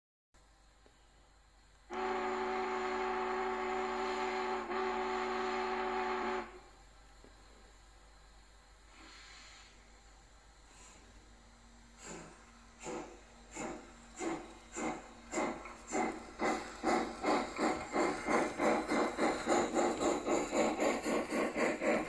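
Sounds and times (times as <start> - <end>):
steam whistle chord: 1.9 - 6.8.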